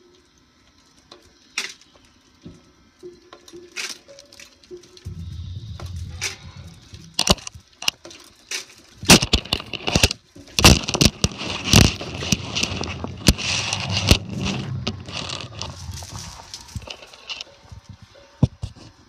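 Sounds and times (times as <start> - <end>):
machinery rumble: 5.0 - 8.1, 10.9 - 18.1
wash noise: 12.1 - 16.8.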